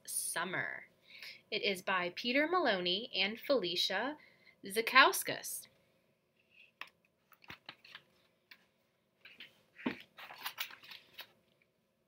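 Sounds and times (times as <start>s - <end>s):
book pages rustling: 6.4s - 11.6s.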